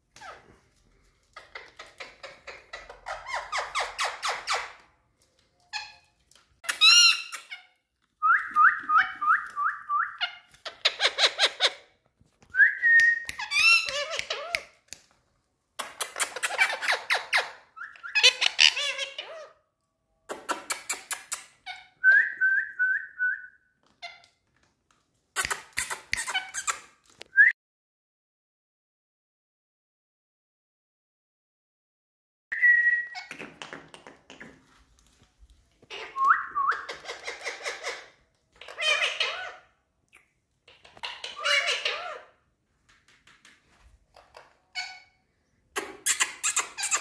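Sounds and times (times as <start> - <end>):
parakeets chattering and calling: 35.9 - 39.6, 40.7 - 42.3.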